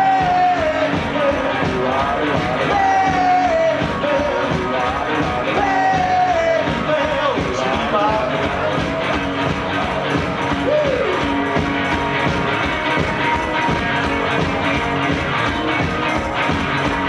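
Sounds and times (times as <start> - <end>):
person singing lead vocal: 0.0 - 11.3
electric guitars: 0.0 - 17.0
steady drum beat: 0.0 - 17.0.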